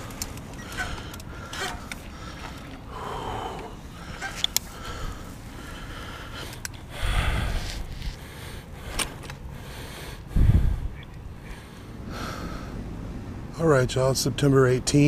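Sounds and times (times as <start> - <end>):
camera handling rustle: 0.0 - 2.1, 4.2 - 4.8, 7.6 - 8.2, 8.9 - 9.4.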